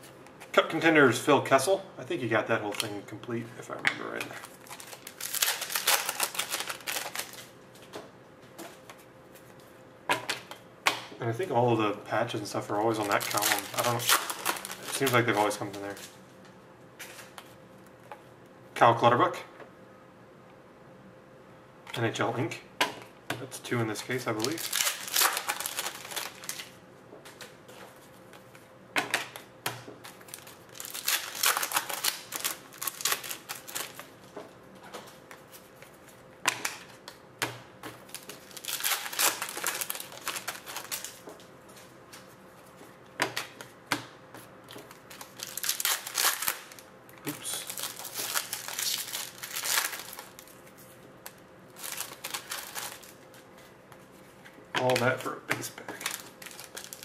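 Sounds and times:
foil wrappers crinkling and tearing: 0:04.4 - 0:07.5, 0:12.8 - 0:16.1, 0:24.0 - 0:26.8, 0:30.0 - 0:34.2, 0:38.0 - 0:41.3, 0:44.7 - 0:53.4, 0:54.8 - 0:57.0.

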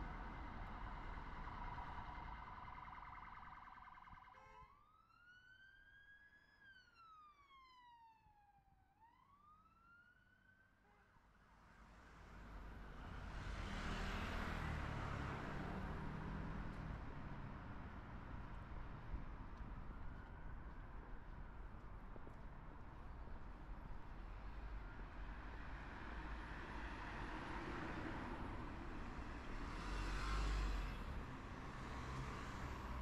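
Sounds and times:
street traffic noise: 0:00.0 - 0:04.6, 0:11.4 - 0:33.0
siren wailing faintly: 0:00.0 - 0:10.5
car passing by: 0:11.8 - 0:18.7, 0:24.3 - 0:33.0.

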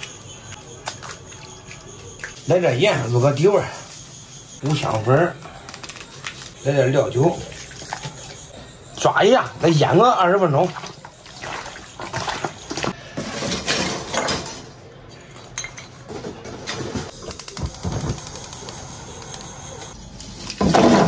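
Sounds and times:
sharp clicks: 0:17.2 - 0:20.0.

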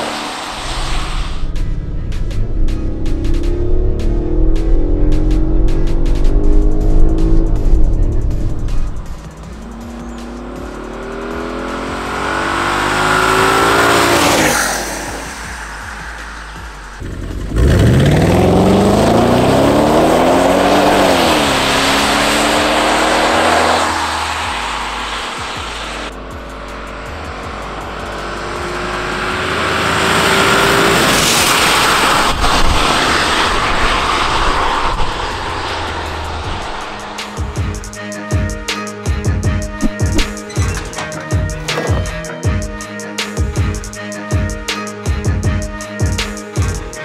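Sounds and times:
tyres hissing on wet road: 0:00.0 - 0:01.6, 0:09.2 - 0:17.0, 0:18.2 - 0:26.1, 0:26.8 - 0:38.3
car engine accelerating past: 0:00.0 - 0:37.7.

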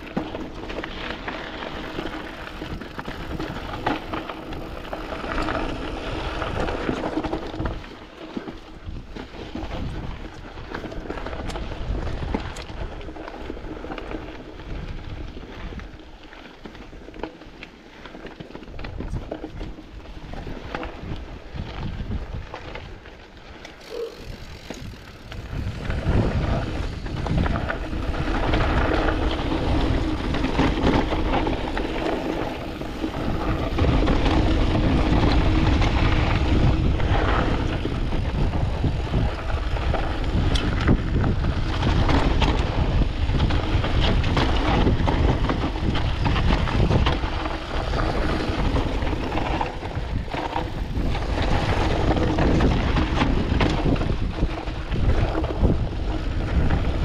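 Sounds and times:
wind rumble on microphone: 0:00.0 - 0:17.3, 0:18.0 - 0:57.0
bike rattling: 0:00.0 - 0:57.0
tyres crunching over dirt and stones: 0:00.0 - 0:57.0.

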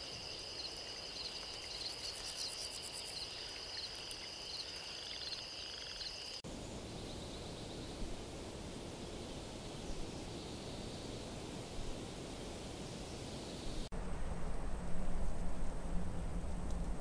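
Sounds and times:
short insect chirp: 0:00.0 - 0:08.0
insect chorus trilling: 0:00.0 - 0:08.2.

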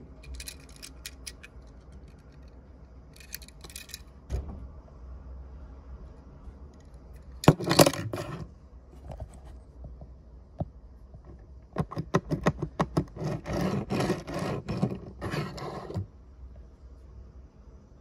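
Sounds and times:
toy car wheels rolling on table: 0:07.4 - 0:08.5, 0:13.0 - 0:16.1.

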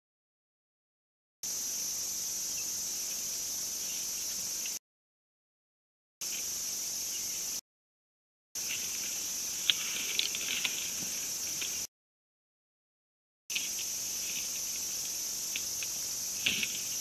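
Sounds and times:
crickets chirping: 0:01.4 - 0:04.8, 0:06.2 - 0:07.6, 0:08.6 - 0:11.9, 0:13.5 - 0:17.0.

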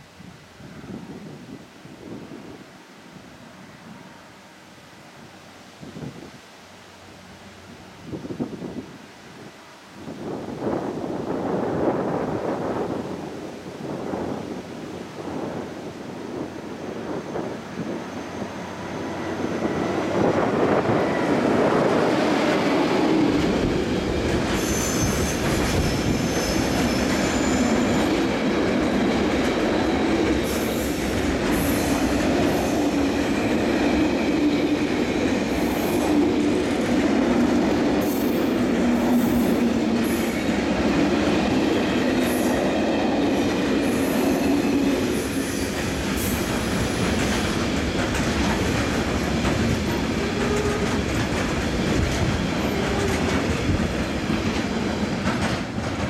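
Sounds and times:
diesel locomotive passing: 0:10.6 - 0:56.0
wheel squeal: 0:24.6 - 0:28.0.

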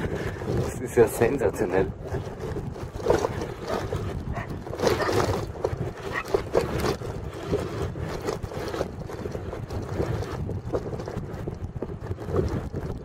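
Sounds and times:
bike knocking and rattling: 0:00.0 - 0:13.0
wind buffeting microphone: 0:00.0 - 0:13.0.

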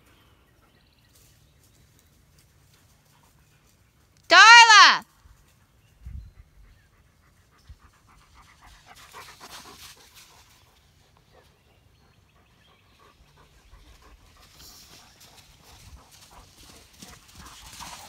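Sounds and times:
dog panting: 0:06.3 - 0:18.0.

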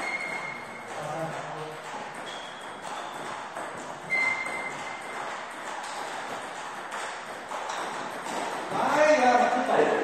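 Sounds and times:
table tennis ball clicking: 0:00.0 - 0:10.0.

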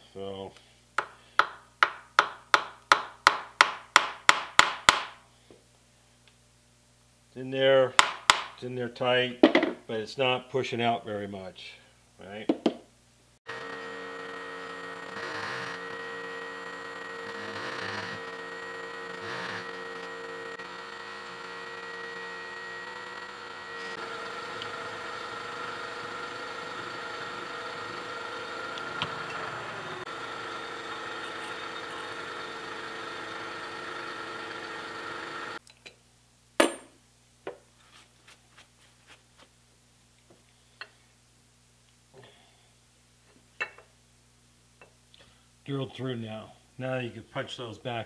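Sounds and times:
drilling machine running: 0:13.5 - 0:35.6.

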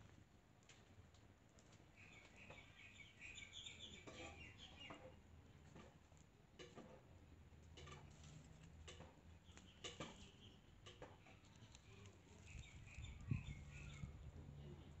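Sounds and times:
faint bird chirps: 0:01.9 - 0:05.1, 0:11.9 - 0:14.9.

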